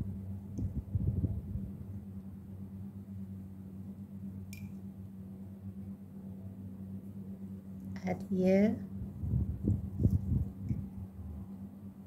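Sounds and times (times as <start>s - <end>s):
steady low hum: 0.0s - 12.0s
brief click: 4.5s - 4.8s.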